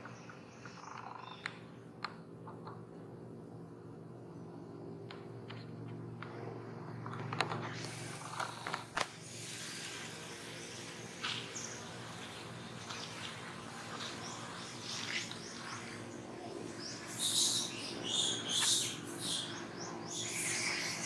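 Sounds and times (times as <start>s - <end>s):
outdoor hiss: 7.4s - 21.0s
bird chirps: 10.4s - 21.0s.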